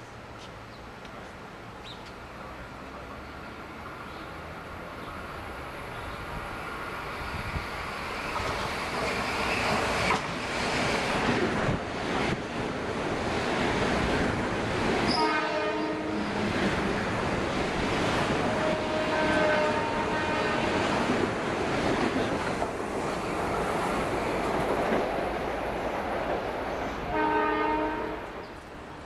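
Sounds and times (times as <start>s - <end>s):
train wheels rumbling on rail: 2.0s - 29.0s
train horn: 15.1s - 16.5s, 18.4s - 20.9s, 27.1s - 28.4s.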